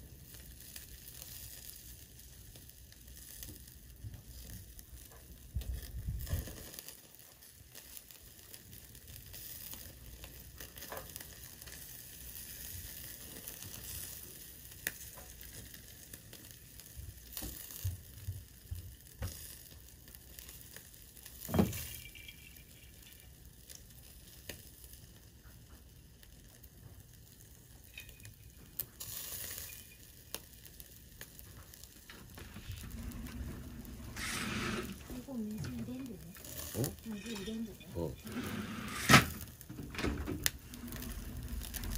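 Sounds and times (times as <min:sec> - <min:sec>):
meat sizzling on a grill: 0:00.0 - 0:41.9.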